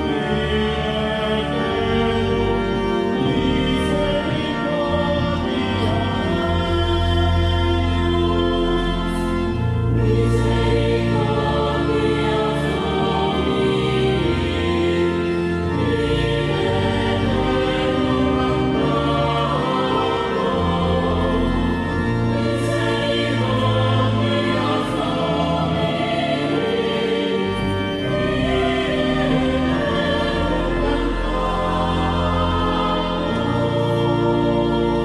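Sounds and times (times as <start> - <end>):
church choir singing: 0.0 - 35.0
organ: 0.0 - 35.0.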